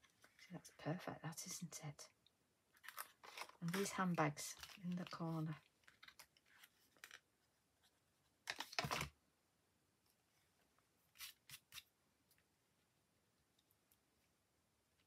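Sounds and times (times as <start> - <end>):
paper rustling: 2.8 - 7.2.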